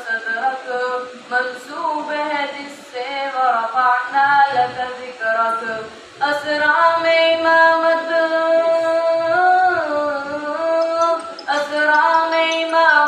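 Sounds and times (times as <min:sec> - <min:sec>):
person chanting through a microphone: 0:00.0 - 0:13.0.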